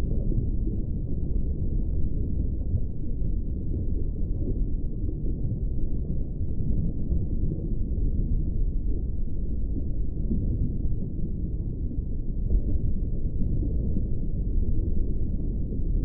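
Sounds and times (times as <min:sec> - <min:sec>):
muffled underwater rumble: 0:00.0 - 0:16.0.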